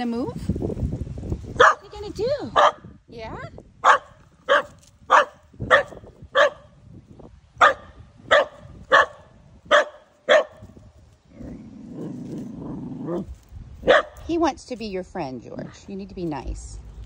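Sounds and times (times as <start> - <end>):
dog barking: 1.6 - 1.9, 2.6 - 2.9, 3.8 - 6.8, 7.6 - 10.6, 13.8 - 14.3.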